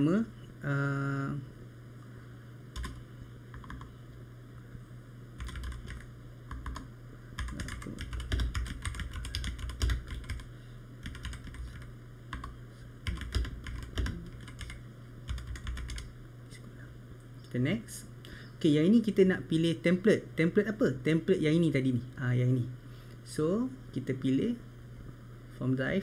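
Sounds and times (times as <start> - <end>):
typing on computer keyboard: 2.8 - 3.9, 5.4 - 16.1.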